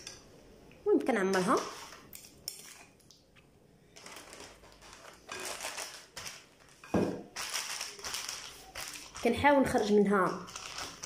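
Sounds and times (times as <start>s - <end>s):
plastic bag crinkling: 3.9s - 11.0s.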